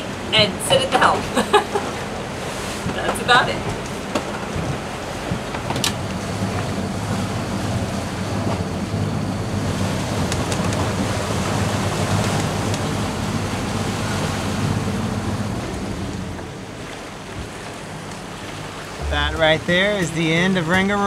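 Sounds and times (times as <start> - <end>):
sea water rushing: 0.0 - 21.0
low rumble: 19.0 - 20.1.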